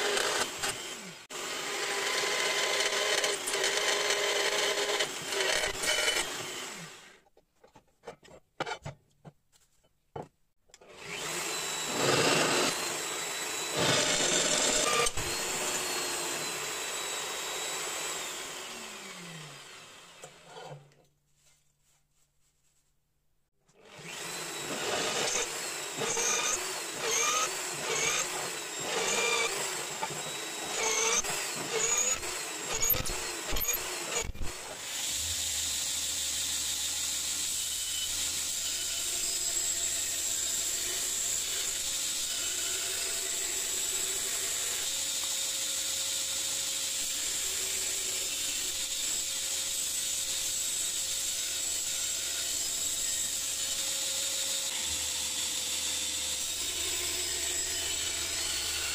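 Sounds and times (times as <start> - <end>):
belt grinder grinding blade: 0.0 - 7.2, 10.8 - 20.9, 24.0 - 35.4
drill press cutting steel: 11.1 - 18.8.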